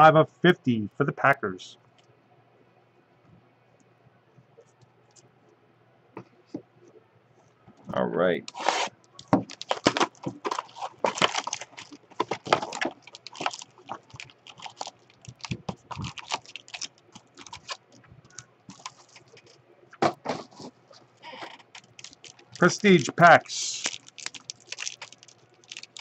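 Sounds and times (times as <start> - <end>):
foil packs rustling and crinkling: 8.5 - 26.0.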